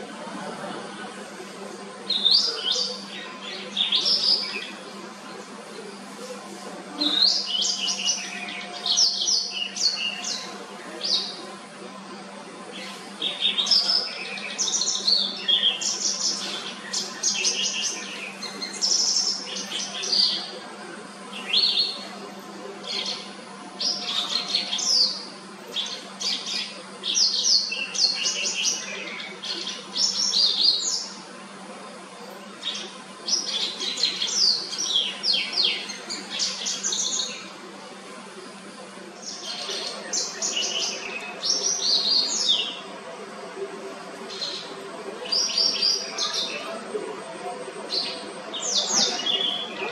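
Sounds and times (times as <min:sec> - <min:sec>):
bird chirping and trilling: 0:47.7 - 0:49.9.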